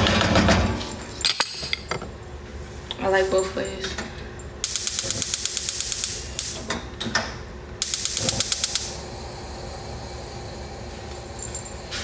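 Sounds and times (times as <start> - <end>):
gas stove igniter clicking: 7.8 - 9.0.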